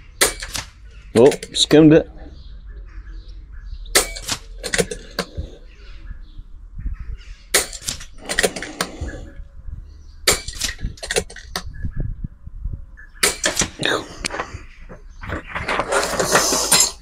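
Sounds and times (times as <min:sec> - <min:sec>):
air rifle shots: 0:13.2 - 0:14.0.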